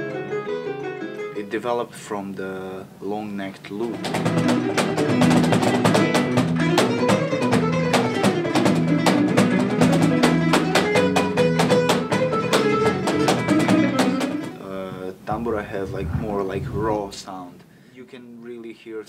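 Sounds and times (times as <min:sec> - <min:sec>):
plucked lute melody: 0:00.0 - 0:01.4, 0:04.0 - 0:14.6
cajon hits: 0:03.9 - 0:14.6.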